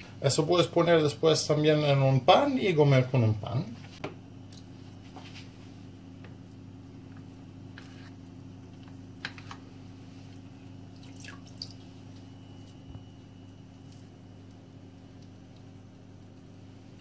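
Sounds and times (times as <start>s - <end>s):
steady low hum: 0.0s - 17.0s
small water splashes and drips: 10.9s - 12.3s.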